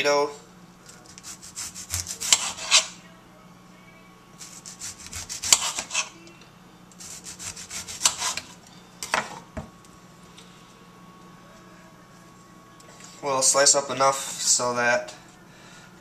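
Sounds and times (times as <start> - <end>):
knife sawing through tomato: 1.1 - 2.9, 4.4 - 6.1, 7.0 - 8.5.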